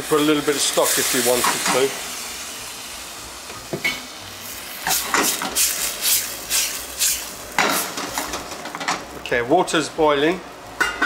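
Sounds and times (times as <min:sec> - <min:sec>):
sauce sizzling in a pan: 0:00.0 - 0:08.6.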